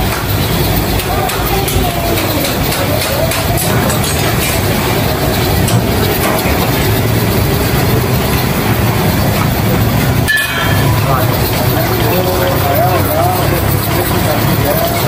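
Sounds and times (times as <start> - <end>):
busy kitchen din: 0.0 - 15.0.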